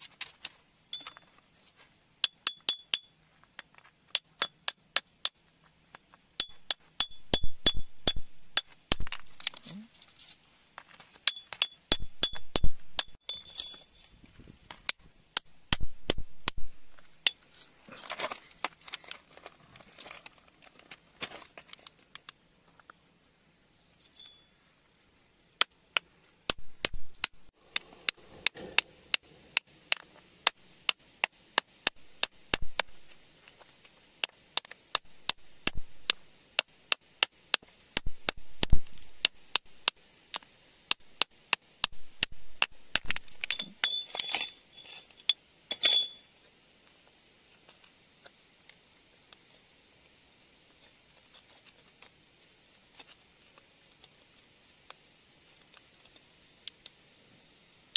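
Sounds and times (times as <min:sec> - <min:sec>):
stones clicking and clinking: 0:02.2 - 0:10.2, 0:25.6 - 0:46.3.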